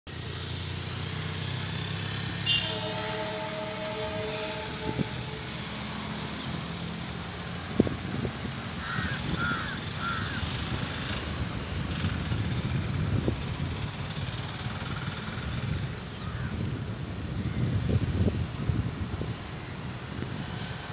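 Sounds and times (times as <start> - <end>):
low rumble of approaching train: 0.2 - 20.9
distant locomotive horn: 1.7 - 9.0.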